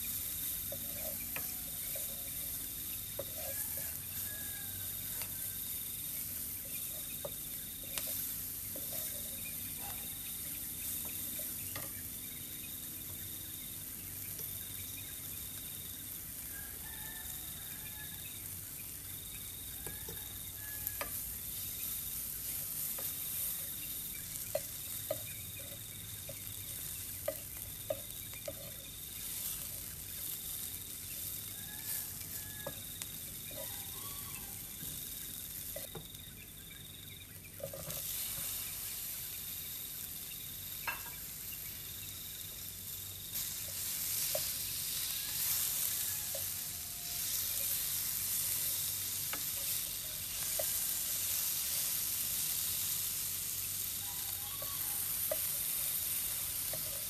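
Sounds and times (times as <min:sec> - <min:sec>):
food sizzling in oil: 0:00.0 - 0:57.0
insect calling in pulses: 0:23.2 - 0:36.2.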